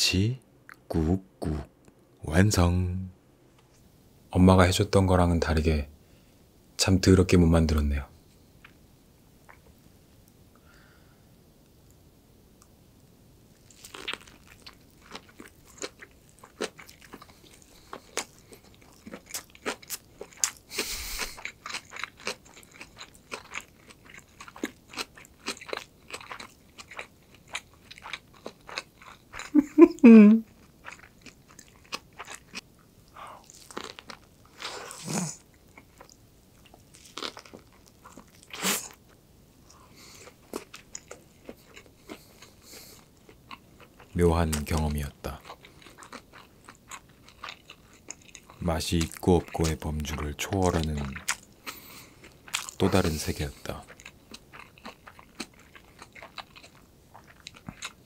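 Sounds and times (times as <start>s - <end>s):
pitched throat sound: 0.9s - 1.8s
crunchy bites: 13.6s - 29.5s, 33.4s - 39.0s
wet chewing: 13.6s - 29.8s, 30.5s - 32.6s, 33.4s - 39.0s, 39.7s - 58.0s.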